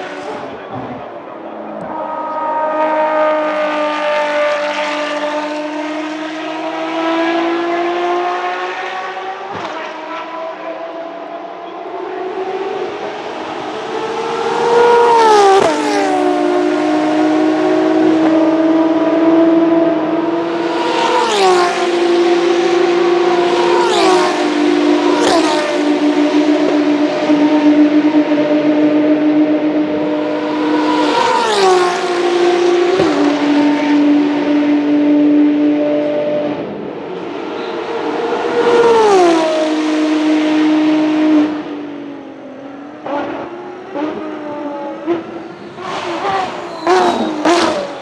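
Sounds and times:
race car engine accelerating: 0:00.0 - 0:48.0.

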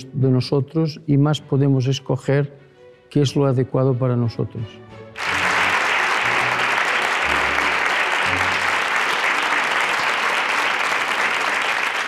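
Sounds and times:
quiet background music: 0:00.0 - 0:08.8
audience applauding: 0:05.2 - 0:12.0.

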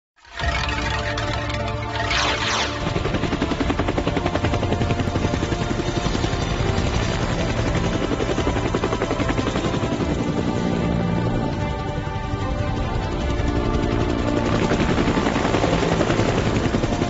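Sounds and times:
helicopter rotor chop: 0:00.3 - 0:17.0.

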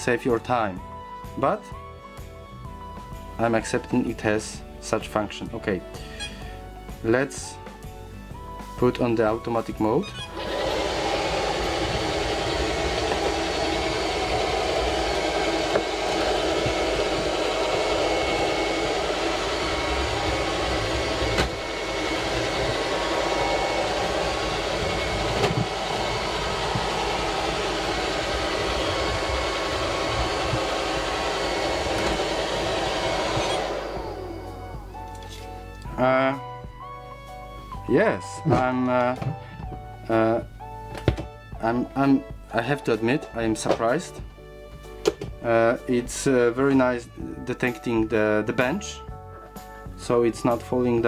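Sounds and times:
robot vacuum cleaner whirring: 0:10.1 - 0:35.0.

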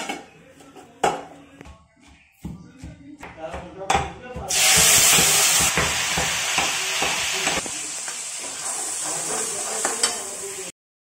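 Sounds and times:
vegetables sizzling in hot oil: 0:04.5 - 0:10.7.

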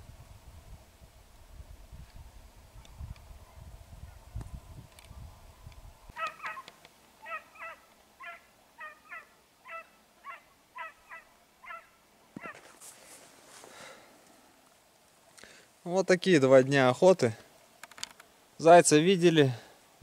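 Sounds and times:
wind rumble on microphone: 0:00.0 - 0:06.2
geese honking: 0:06.1 - 0:12.7.

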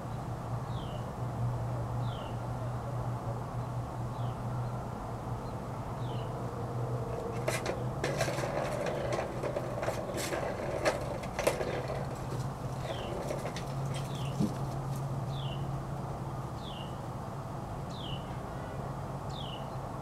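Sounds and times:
plastic cat toy clicks and rattles: 0:07.4 - 0:14.6.

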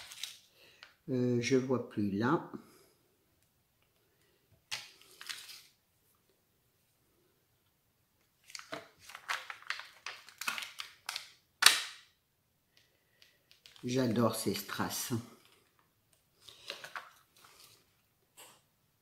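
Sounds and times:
plastic sheet crackling: 0:08.4 - 0:11.9.

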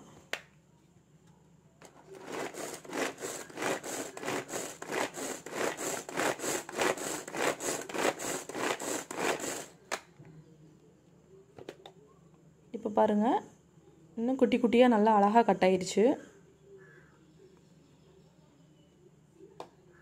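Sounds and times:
pull-cord chopper chopping onion: 0:02.1 - 0:10.0.

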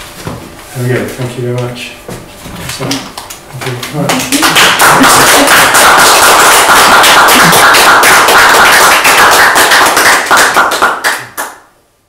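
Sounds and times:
audience applauding: 0:03.8 - 0:11.7.

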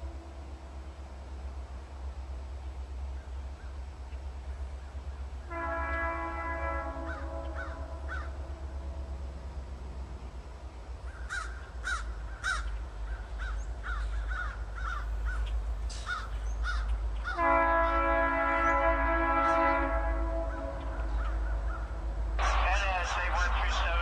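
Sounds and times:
distant train rumble: 0:00.0 - 0:24.0
crows cawing: 0:06.9 - 0:08.4, 0:11.0 - 0:17.4, 0:20.5 - 0:22.0.

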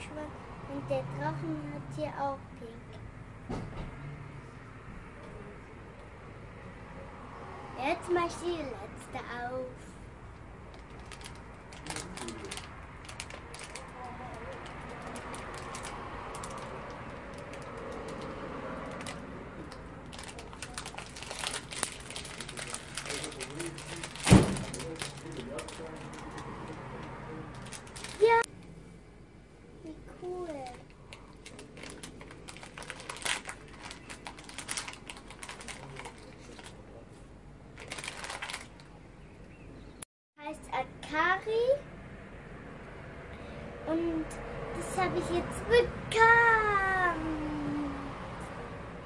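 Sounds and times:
foil bag crinkling: 0:10.7 - 0:28.5, 0:30.5 - 0:36.8, 0:37.8 - 0:38.9.

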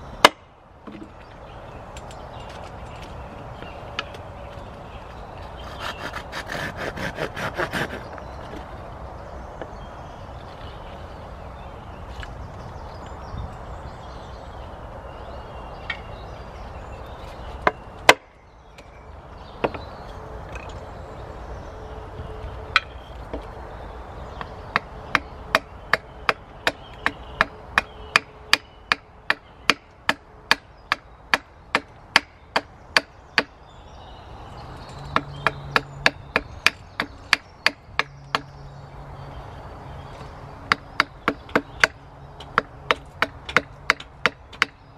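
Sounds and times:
wood being chopped: 0:00.2 - 0:01.1, 0:17.6 - 0:18.3, 0:35.1 - 0:38.5, 0:40.7 - 0:44.8.

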